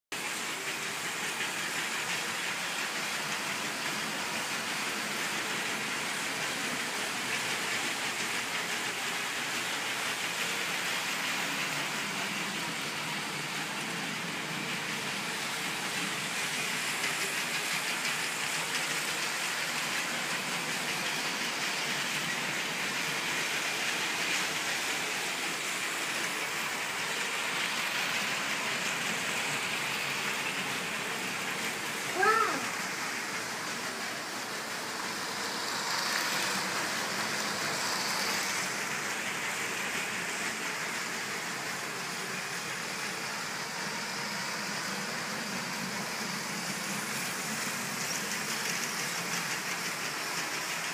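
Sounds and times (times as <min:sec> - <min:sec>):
toy train motors whirring: 0:00.2 - 0:50.9.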